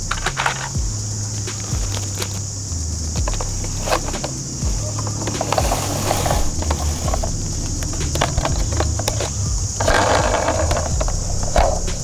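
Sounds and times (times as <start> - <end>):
low rumble: 0.0 - 12.0
steady high hiss: 0.0 - 12.0
plastic toy clicks and knocks: 0.1 - 0.8.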